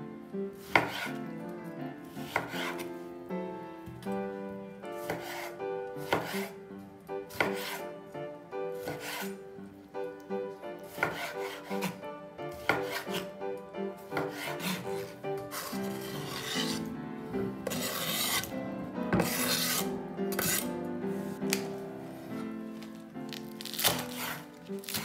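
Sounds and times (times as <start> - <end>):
soft background music: 0.0 - 25.0
knife chopping on cutting board: 0.6 - 1.2, 2.2 - 2.9, 5.0 - 6.5, 7.3 - 7.8, 8.8 - 9.4, 10.9 - 13.3, 14.1 - 16.9, 17.6 - 18.5, 19.1 - 20.7, 23.6 - 25.0
food scraped off wooden board: 8.8 - 9.4, 14.2 - 16.9, 17.6 - 18.6, 19.2 - 20.7, 23.8 - 25.0.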